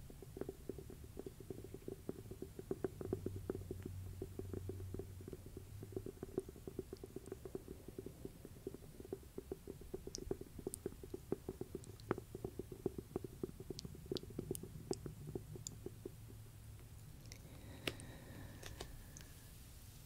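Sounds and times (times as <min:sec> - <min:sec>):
fingertips tapping on book cover: 0:17.5 - 0:19.0.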